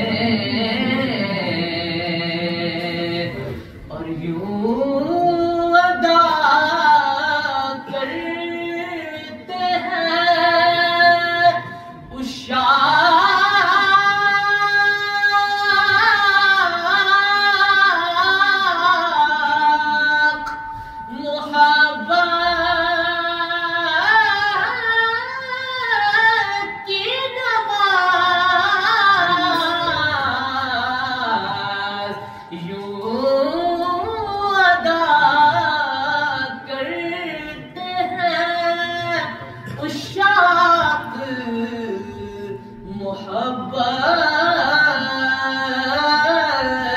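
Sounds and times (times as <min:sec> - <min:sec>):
man singing unaccompanied: 0:21.1 - 0:46.9.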